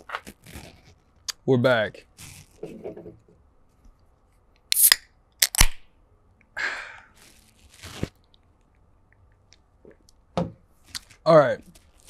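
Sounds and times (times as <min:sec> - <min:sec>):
can opening hiss: 0:04.7 - 0:05.6.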